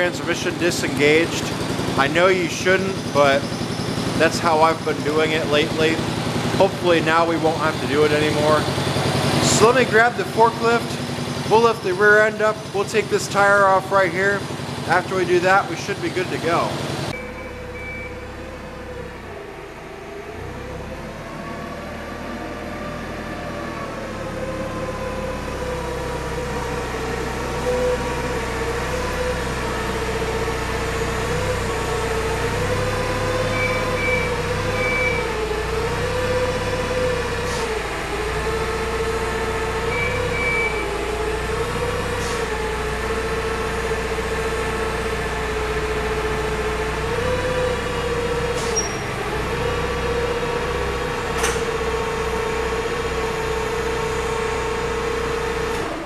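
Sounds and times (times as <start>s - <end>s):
forklift engine whining: 0.0s - 56.0s
short high beeps: 17.2s - 18.3s.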